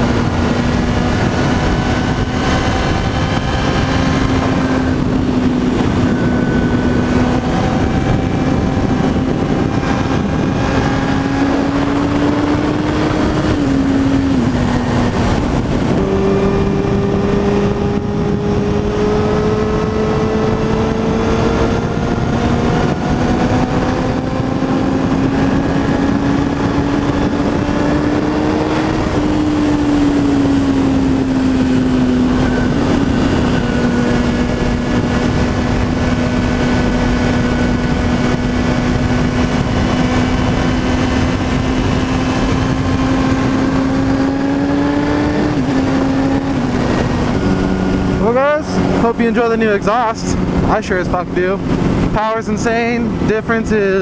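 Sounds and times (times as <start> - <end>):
motorcycle engine at speed: 0.0 - 54.0
wind rush: 0.0 - 54.0.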